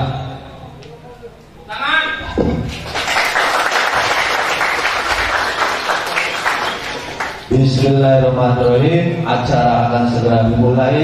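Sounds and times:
crowd applauding: 0:02.6 - 0:07.5.

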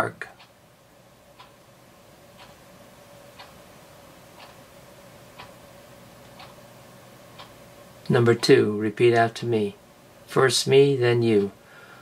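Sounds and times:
low steady hum: 0:00.0 - 0:12.0
clock ticking faintly: 0:00.1 - 0:00.6, 0:01.3 - 0:01.6, 0:02.3 - 0:02.6, 0:03.3 - 0:03.6, 0:04.3 - 0:04.6, 0:05.3 - 0:05.6, 0:06.3 - 0:06.6, 0:07.3 - 0:08.5.

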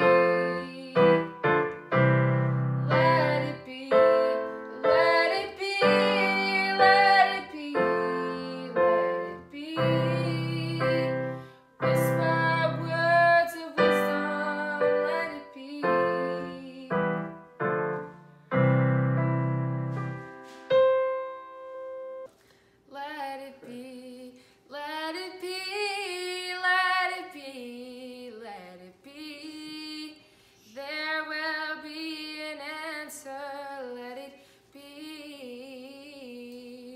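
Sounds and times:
woman singing slow melody: 0:00.0 - 0:01.5, 0:02.8 - 0:17.3, 0:22.9 - 0:36.9
keyboard playing piano chords: 0:00.0 - 0:22.3.

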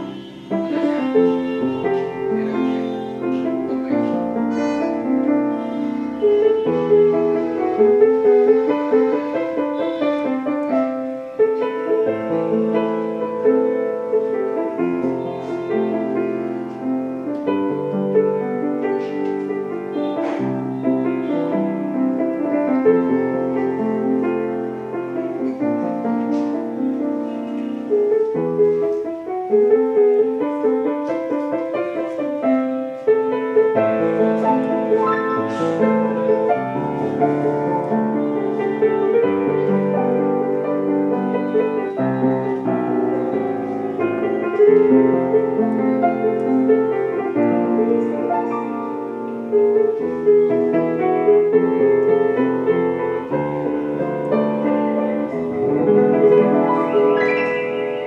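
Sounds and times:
solo piano melody: 0:00.0 - 0:58.0.

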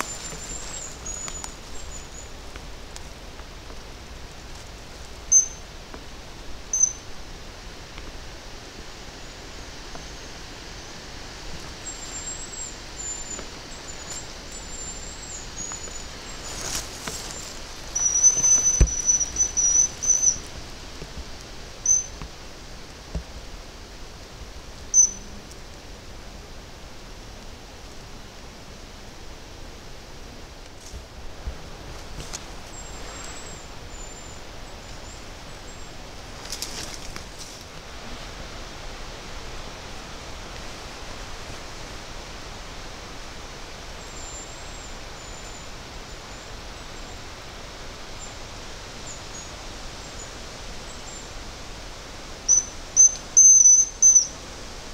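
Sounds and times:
twigs crackling and snapping: 0:00.0 - 0:01.9, 0:15.7 - 0:19.6, 0:36.4 - 0:37.7
brush rustling: 0:00.0 - 0:06.6, 0:11.4 - 0:23.4, 0:30.6 - 0:33.8, 0:36.0 - 0:38.3
wind through leafy brush: 0:00.0 - 0:54.9
bird high whistled notes: 0:05.3 - 0:05.6, 0:06.7 - 0:07.1, 0:18.0 - 0:20.5, 0:21.8 - 0:22.2, 0:25.0 - 0:25.3, 0:52.5 - 0:54.3.

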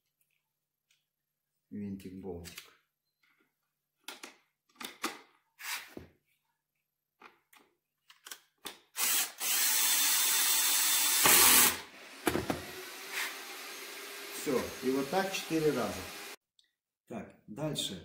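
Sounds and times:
cordless drill driving bolt: 0:09.0 - 0:14.4.

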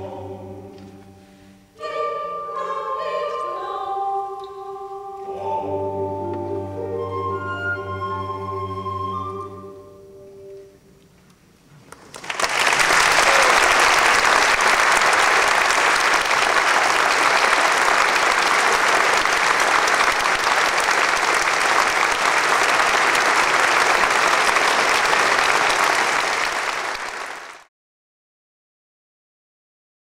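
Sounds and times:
crowd applause: 0:11.9 - 0:27.7.

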